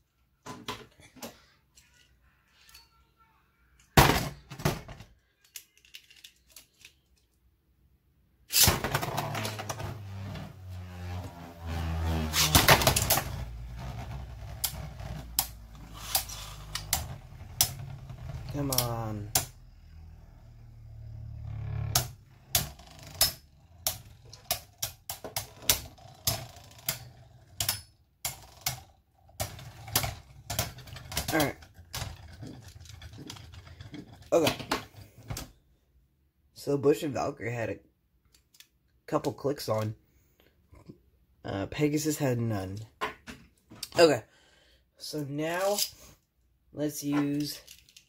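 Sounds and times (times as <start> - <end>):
small plastic clicks: 5.3 - 7.4
spinning top whirring scrape: 8.5 - 24.8.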